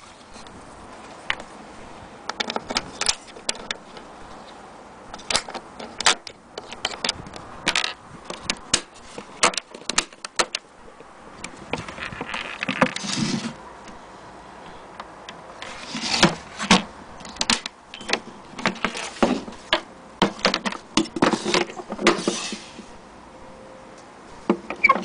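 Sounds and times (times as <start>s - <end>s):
scraping rustle: 0.0s - 10.7s, 11.4s - 14.0s, 15.5s - 23.0s
metal latches clicking and knocking: 5.1s - 10.6s, 16.1s - 22.3s.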